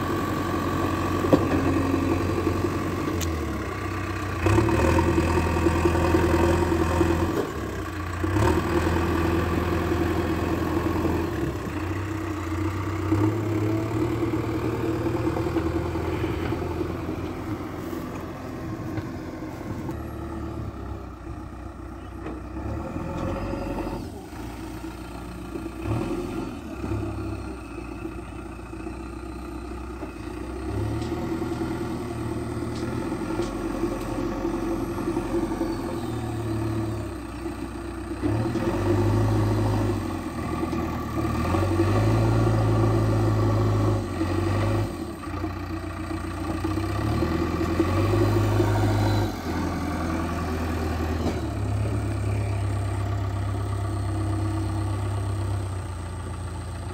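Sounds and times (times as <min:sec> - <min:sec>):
diesel engine revving: 0:00.0 - 0:56.9.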